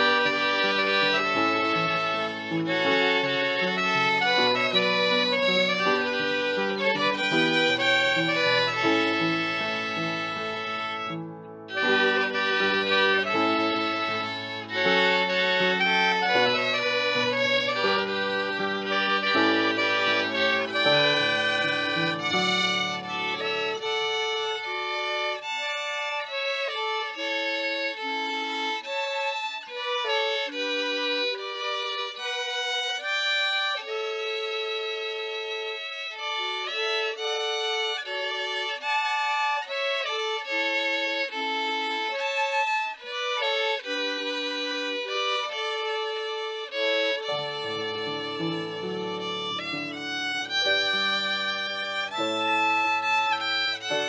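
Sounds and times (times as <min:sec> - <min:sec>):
lower accompaniment: 0:00.0 - 0:35.2
violin melody: 0:00.0 - 0:54.0.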